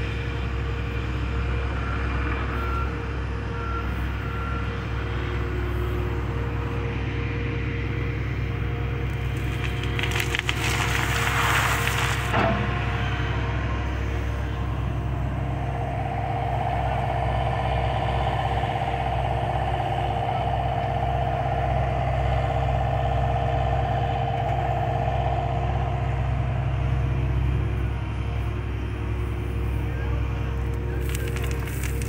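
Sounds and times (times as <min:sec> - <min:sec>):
diesel engine running: 0:00.0 - 0:32.0
hydraulic whine: 0:09.0 - 0:32.0.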